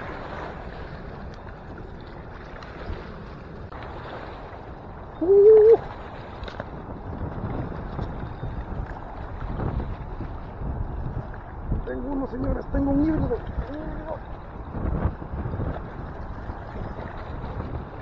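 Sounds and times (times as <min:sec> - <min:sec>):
wind buffeting microphone: 0:00.0 - 0:18.0
short hoot-like call: 0:05.2 - 0:05.8.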